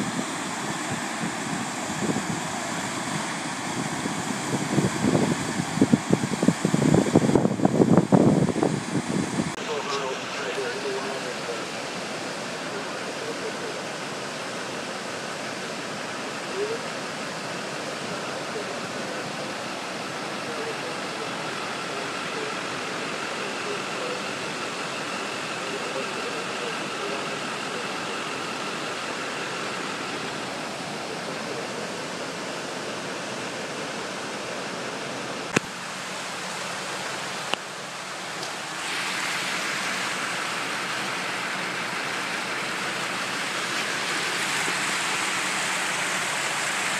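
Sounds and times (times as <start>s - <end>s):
water roaring through a channel: 0.0s - 46.9s.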